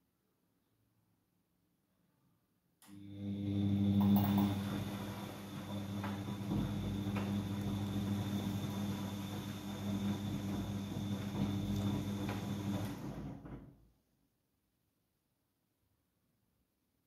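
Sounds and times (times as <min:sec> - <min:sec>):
washing machine running: 0:02.9 - 0:13.8.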